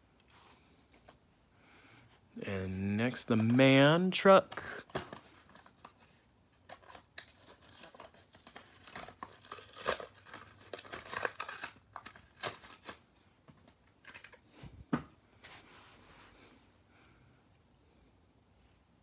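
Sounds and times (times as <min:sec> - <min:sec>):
plastic packaging crinkling: 0:06.6 - 0:13.2.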